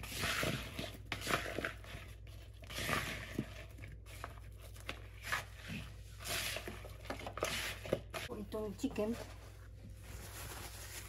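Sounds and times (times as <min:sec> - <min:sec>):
spatula scraping in bowl: 0:00.0 - 0:08.3.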